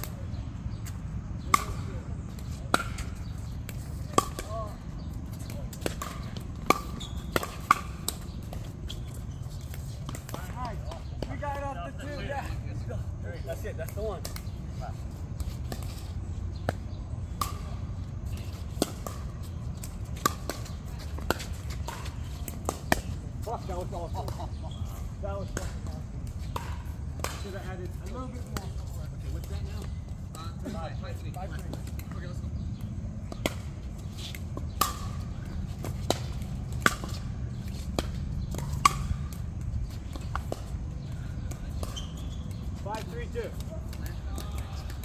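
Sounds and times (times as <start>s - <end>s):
ball hit by racket: 1.4s - 4.7s, 5.4s - 8.6s, 33.3s - 42.6s.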